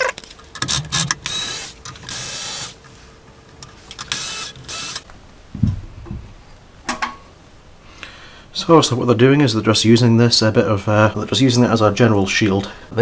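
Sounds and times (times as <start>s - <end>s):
electric screwdriver whirring: 0.6s - 2.8s, 4.0s - 5.0s
low knock: 5.5s - 6.3s.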